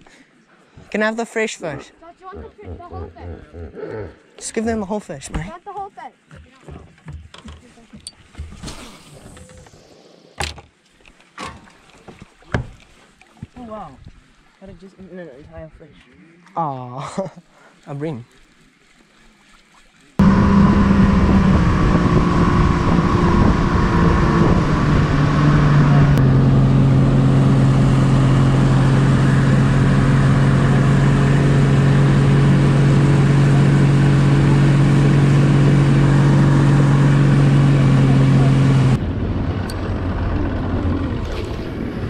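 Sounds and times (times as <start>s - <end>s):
engine running under load: 20.2s - 42.0s.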